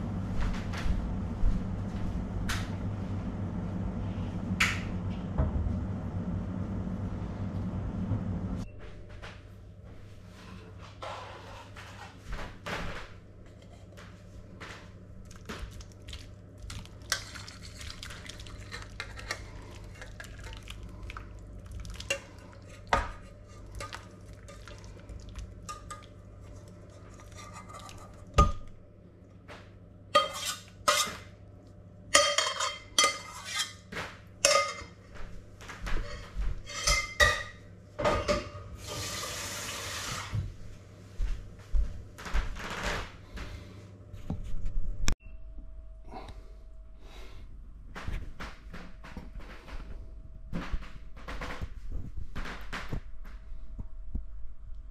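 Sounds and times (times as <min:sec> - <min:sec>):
steady low hum: 0:00.0 - 0:38.9, 0:40.4 - 0:54.9
metal cookware clinks and knocks: 0:34.4 - 0:35.0.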